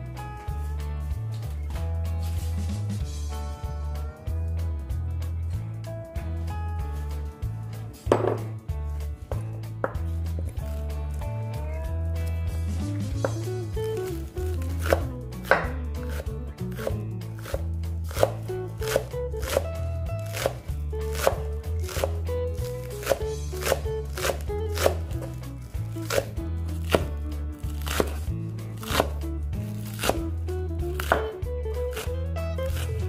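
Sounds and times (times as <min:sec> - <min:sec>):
background music with bass line: 0:00.0 - 0:33.0
knife chopping on wooden board: 0:08.1 - 0:08.5, 0:14.6 - 0:16.2, 0:16.8 - 0:25.4, 0:26.0 - 0:29.2, 0:29.8 - 0:30.3, 0:30.9 - 0:33.0.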